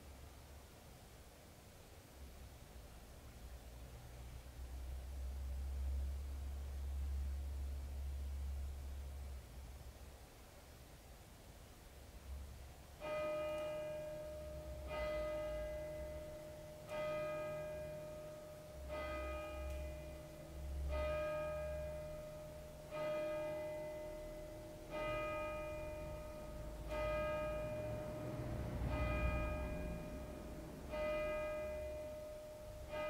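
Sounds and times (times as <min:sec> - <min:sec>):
bell tolling slowly: 0:13.0 - 0:33.0.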